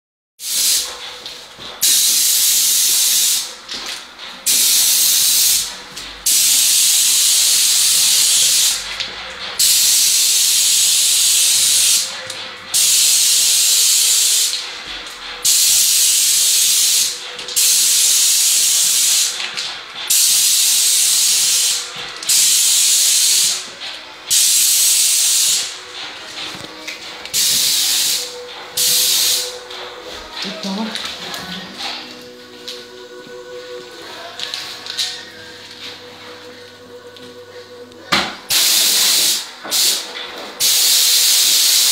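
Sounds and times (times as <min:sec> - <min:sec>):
paint spray gun hissing: 0:00.4 - 0:00.9, 0:01.8 - 0:03.5, 0:04.5 - 0:05.7, 0:06.3 - 0:08.8, 0:09.6 - 0:12.1, 0:12.8 - 0:14.5, 0:15.4 - 0:19.4, 0:20.1 - 0:23.7, 0:24.3 - 0:25.8, 0:27.3 - 0:29.6, 0:38.5 - 0:41.9.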